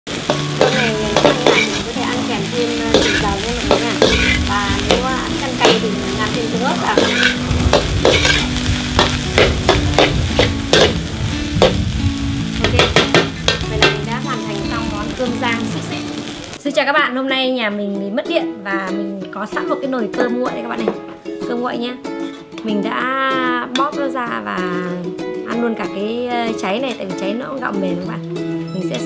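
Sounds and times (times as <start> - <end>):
rice sizzling in pan: 0.1 - 16.6
metal ladle clanking on wok: 0.3 - 2.2, 2.9 - 6.0, 6.8 - 11.0.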